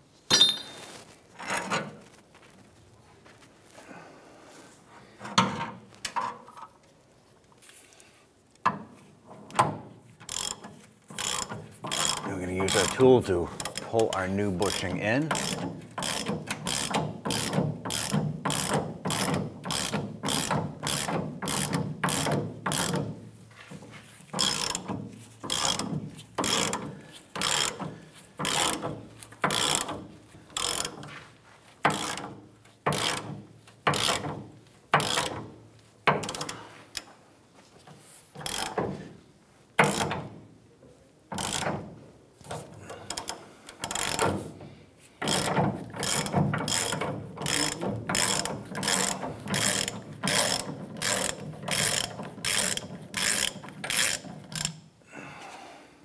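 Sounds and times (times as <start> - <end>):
hand ratchet clicking: 9.5 - 31.2, 31.8 - 37.1, 38.3 - 39.0, 39.8 - 40.4, 41.3 - 41.9, 42.5 - 44.5, 45.2 - 54.9.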